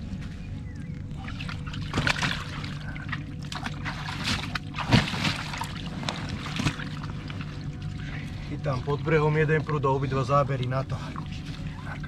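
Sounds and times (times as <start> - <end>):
water splashing and trickling: 1.1 - 12.0.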